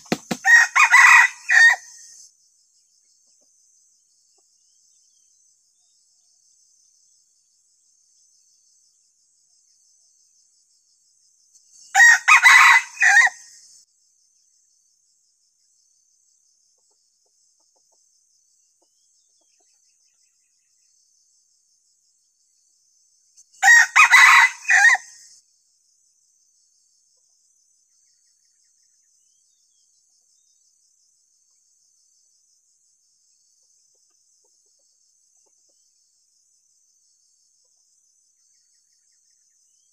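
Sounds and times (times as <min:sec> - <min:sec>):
high insect trill: 0:00.0 - 0:39.9
rooster crowing: 0:00.2 - 0:01.9, 0:12.0 - 0:13.4, 0:23.6 - 0:25.2.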